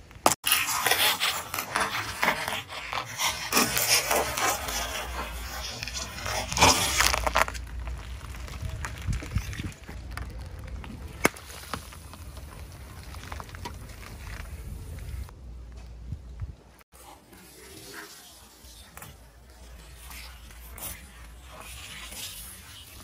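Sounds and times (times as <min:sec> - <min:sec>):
plastic balls crackling and popping: 0:00.0 - 0:15.3.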